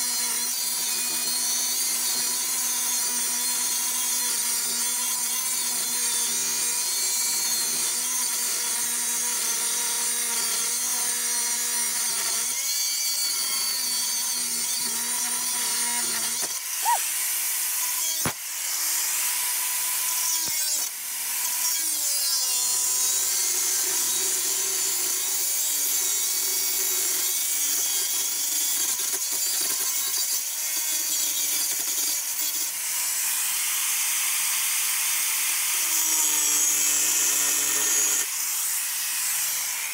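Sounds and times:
angle grinder grinding steel: 0.0s - 23.4s, 35.8s - 39.9s.

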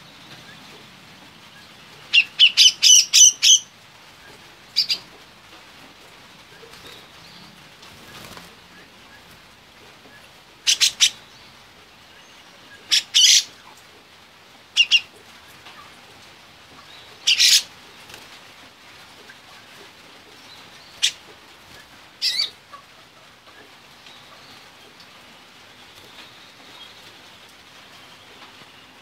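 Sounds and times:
bird giving sharp calls: 10.6s - 11.2s, 12.8s - 13.5s, 17.3s - 17.7s.

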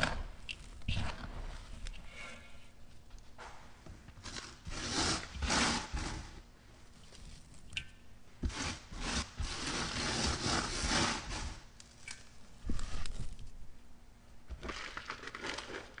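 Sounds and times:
gritty rustling of crumbled block: 14.5s - 16.0s.

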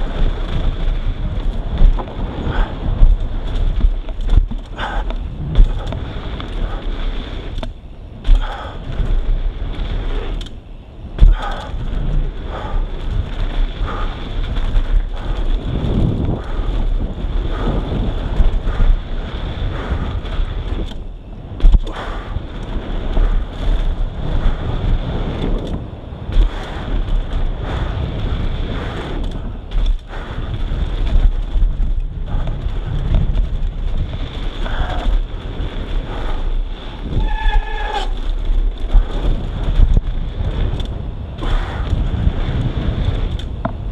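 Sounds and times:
bike tyre roll and rattle: 0.0s - 43.9s
wind rushing over microphone: 0.0s - 43.9s.

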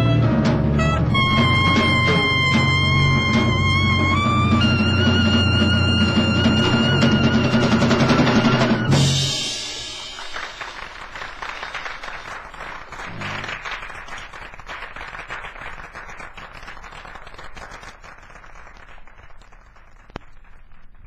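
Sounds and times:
audience applause: 6.2s - 21.0s.

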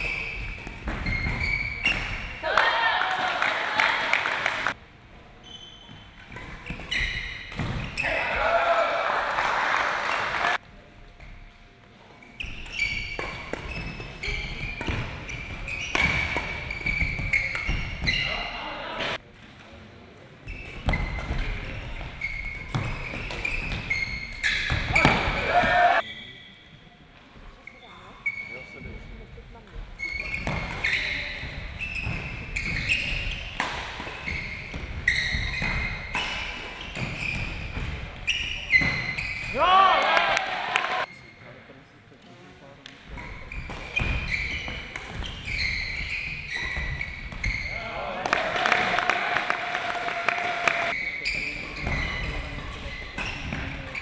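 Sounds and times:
shoes squeaking on court floor: 0.0s - 2.4s, 5.4s - 8.3s, 12.1s - 19.2s, 20.4s - 39.6s, 43.1s - 48.0s, 50.7s - 54.0s
racket hitting shuttlecock: 33.6s - 38.0s.

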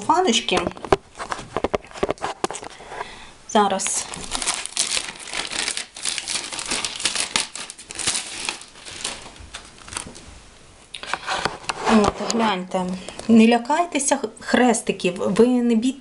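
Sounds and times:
cellophane sleeve crinkling: 3.6s - 10.3s.

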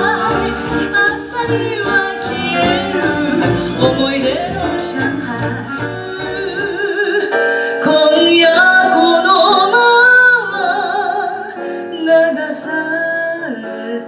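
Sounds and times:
band accompaniment: 0.0s - 9.9s
grand piano: 0.0s - 14.0s
woman singing with vibrato: 0.0s - 14.0s.

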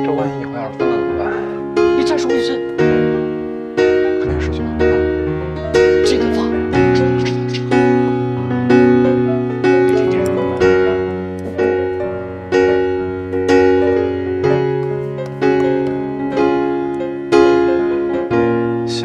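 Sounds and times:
slow piano notes: 0.0s - 19.0s.

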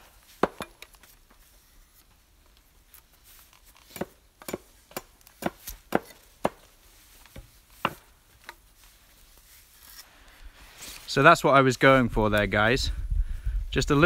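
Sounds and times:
hatchet chopping wood: 0.2s - 1.1s, 3.7s - 8.6s.

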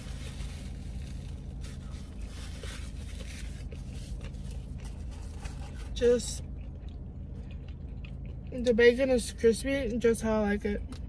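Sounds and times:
paper wrapper crinkling: 0.0s - 5.9s
steady low hum: 0.0s - 11.0s.

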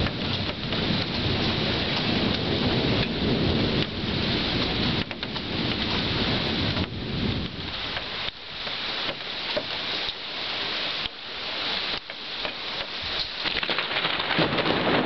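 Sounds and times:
thunder rumble: 0.0s - 8.7s, 13.0s - 15.0s
steady rain falling: 0.0s - 15.0s.

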